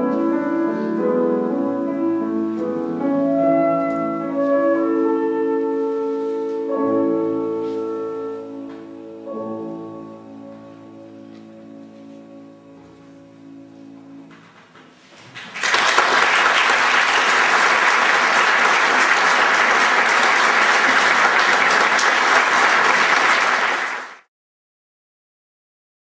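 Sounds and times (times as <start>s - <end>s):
clarinet and piano piece: 0.0s - 15.0s
audience applause: 15.3s - 24.3s.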